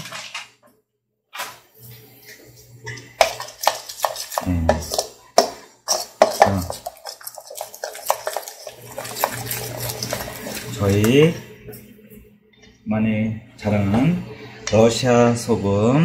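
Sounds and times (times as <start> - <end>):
spoon stirring batter in metal bowl: 2.3 - 11.9.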